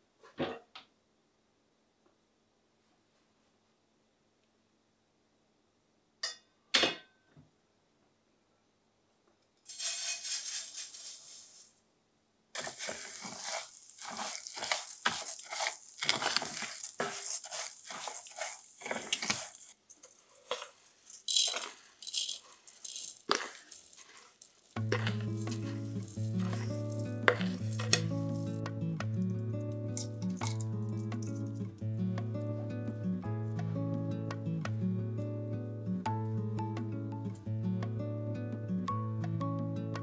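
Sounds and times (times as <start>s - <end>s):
spatula stirring rice in pan: 12.6s - 28.6s.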